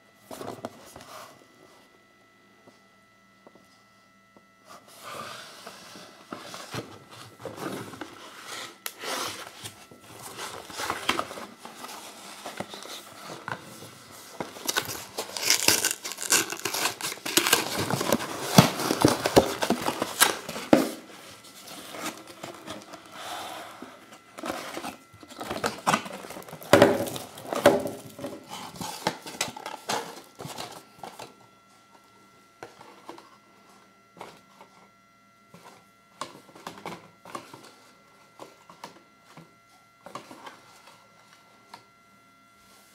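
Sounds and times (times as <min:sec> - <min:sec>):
foil crinkling and rustling: 0:07.0 - 0:23.1, 0:24.4 - 0:31.2
cardboard box tearing: 0:14.5 - 0:20.8.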